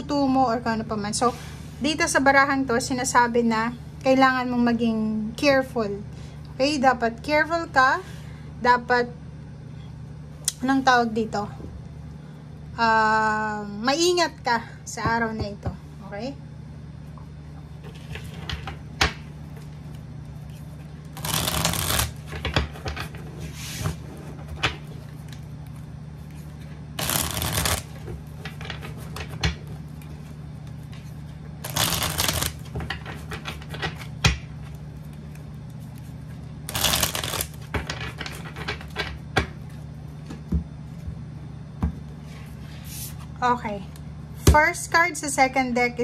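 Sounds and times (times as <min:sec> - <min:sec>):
cards being shuffled: 0:19.6 - 0:24.0, 0:24.8 - 0:39.0
cards clicking and tapping: 0:21.2 - 0:23.1, 0:27.0 - 0:27.9, 0:31.6 - 0:34.4, 0:36.7 - 0:39.6.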